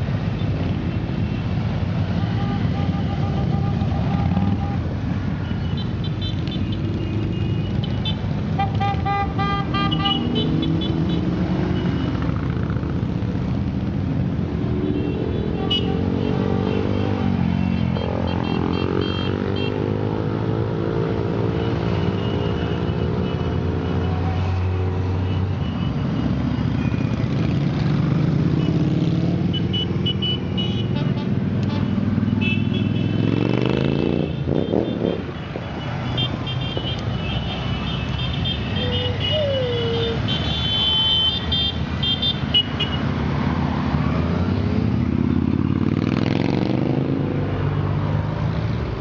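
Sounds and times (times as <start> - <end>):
motorcycle engines passing: 0.0 - 49.0
horns beeping: 0.9 - 12.3, 28.6 - 43.1.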